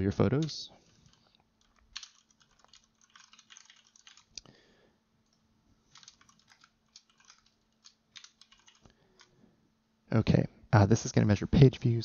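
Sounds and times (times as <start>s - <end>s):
faint keyboard typing: 0.1s - 9.4s.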